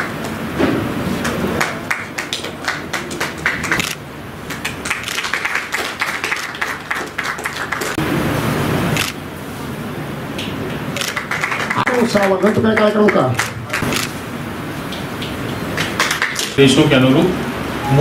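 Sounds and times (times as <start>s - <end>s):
audience applauding: 1.2s - 8.0s, 10.9s - 14.0s, 15.7s - 16.6s.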